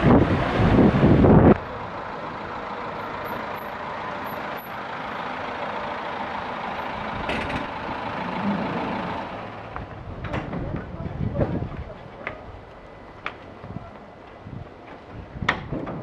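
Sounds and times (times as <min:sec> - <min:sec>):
van driving past: 0:00.0 - 0:10.2.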